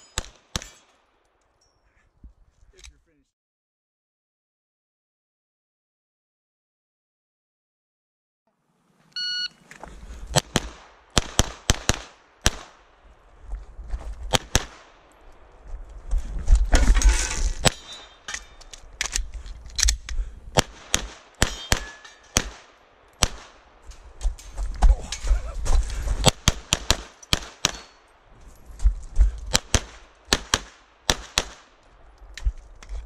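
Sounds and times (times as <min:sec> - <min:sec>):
shot timer beep: 0:09.2 - 0:09.6
handgun rapid fire: 0:10.3 - 0:12.8, 0:20.6 - 0:23.6, 0:26.2 - 0:27.9, 0:29.5 - 0:31.7.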